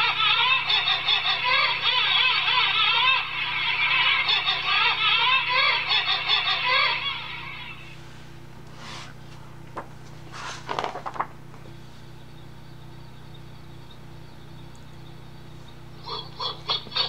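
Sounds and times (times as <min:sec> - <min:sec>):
steady low hum: 0:00.0 - 0:17.0
book page turning: 0:08.8 - 0:11.8.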